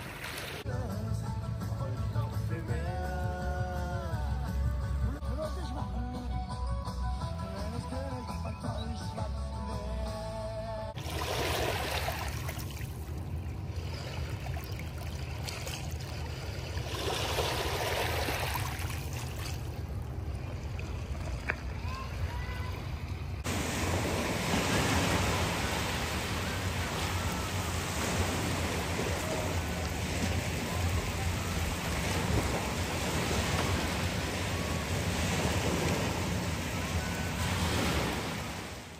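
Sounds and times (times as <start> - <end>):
waves lapping on pebble shore: 11.0 - 13.1, 23.5 - 38.9.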